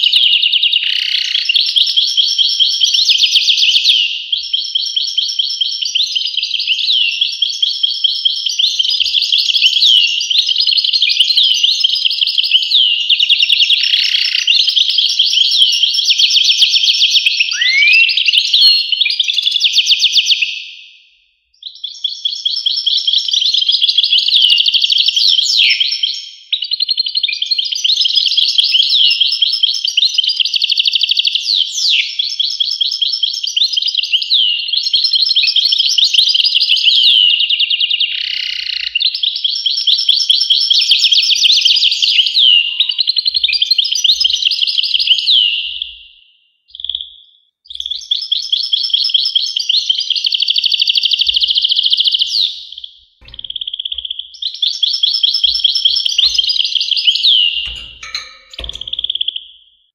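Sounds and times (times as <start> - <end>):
goldfinch singing: 0.8 - 20.5, 46.7 - 59.6.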